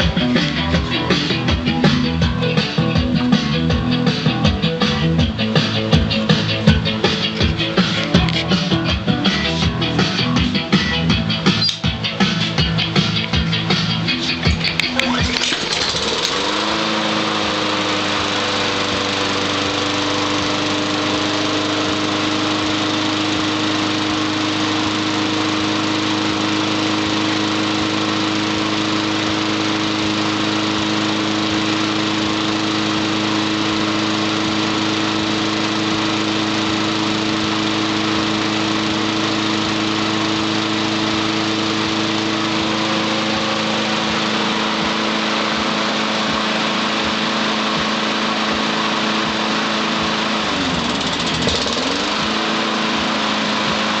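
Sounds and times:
lawn mower engine running: 0.0 - 54.0.

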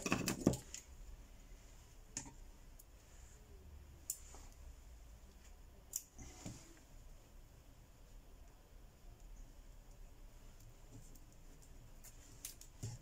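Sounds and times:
small parts clicking: 5.3 - 6.2.

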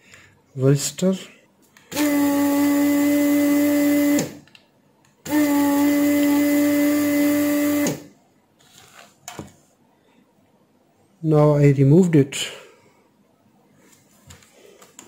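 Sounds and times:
vacuum pump humming with rushing air: 1.9 - 4.4, 5.2 - 8.1.

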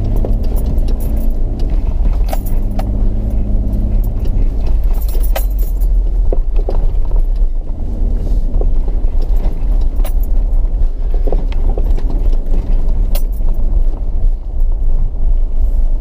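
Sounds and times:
engine and road rumble: 0.0 - 16.0
vehicle clicks and rattles: 0.0 - 16.0.

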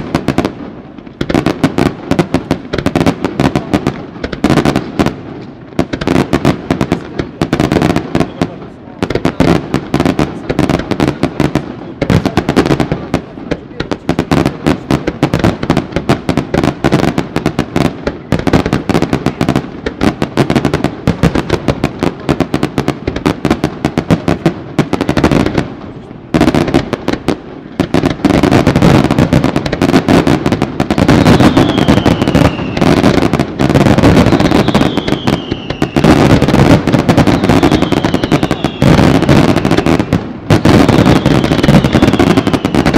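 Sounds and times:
fireworks crackling: 0.0 - 42.9
fireworks launching and bursting: 0.0 - 42.9
falling whistles: 31.4 - 32.8.

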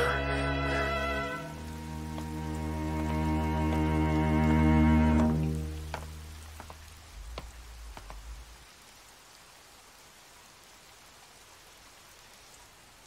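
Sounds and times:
steady rain falling: 0.0 - 13.0
low rumble: 6.3 - 8.8.

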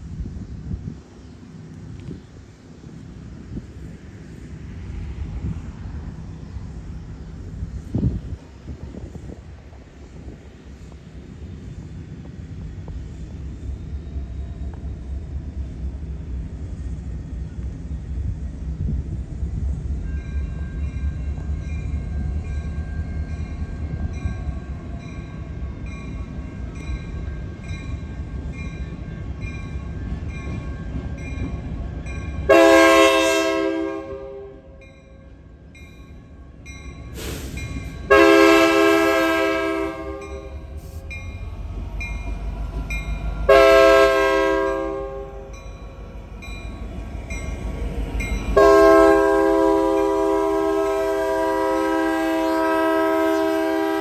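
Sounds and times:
diesel locomotive rumbling: 0.0 - 54.0
locomotive air horn: 32.5 - 34.8, 37.2 - 41.1, 43.4 - 45.5, 48.6 - 54.0.

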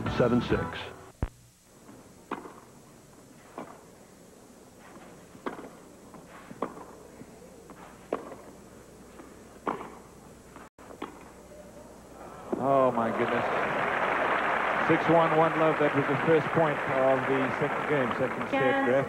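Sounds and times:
tennis racket hitting ball: 2.3 - 2.7, 4.8 - 7.0, 7.7 - 8.5, 9.2 - 10.1, 10.9 - 11.3.

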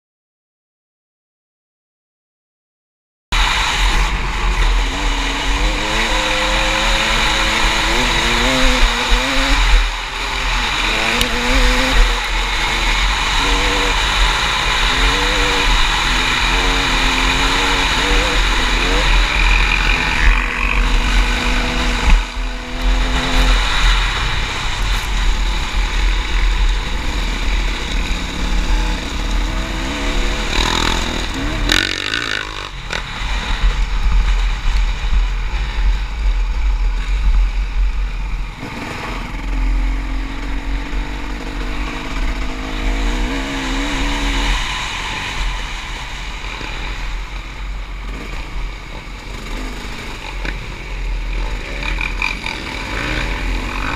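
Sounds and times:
wind rumble on microphone: 3.4 - 52.3
motorcycle engine revving: 3.4 - 53.9.

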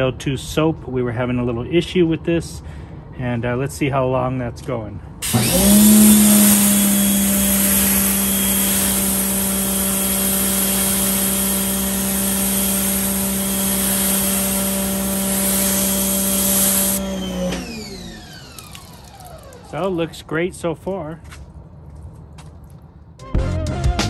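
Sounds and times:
water jet spraying: 5.2 - 17.6
pressure washer motor humming: 5.2 - 20.2.

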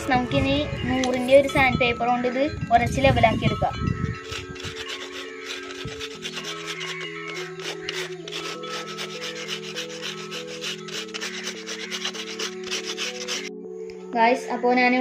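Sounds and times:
soft background music: 0.0 - 15.0
sandpaper scratching: 4.2 - 13.5.

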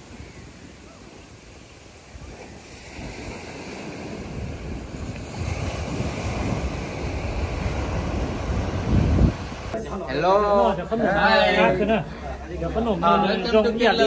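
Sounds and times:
wind gusting against microphone: 0.0 - 9.8.

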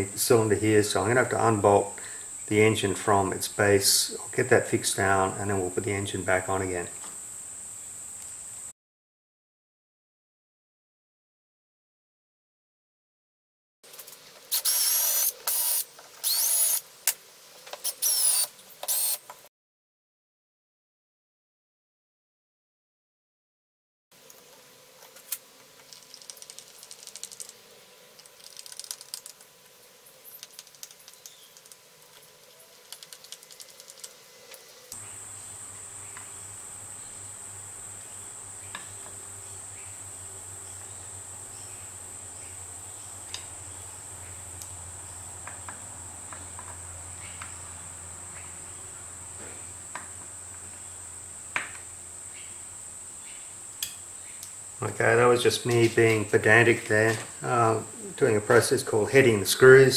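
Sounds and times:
screwdriver clicking on screws: 14.5 - 16.8, 17.8 - 19.2.

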